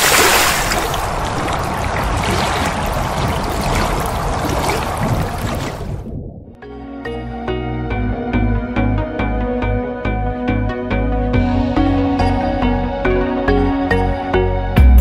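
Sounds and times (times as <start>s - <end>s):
rushing splashing water: 0.0s - 6.1s.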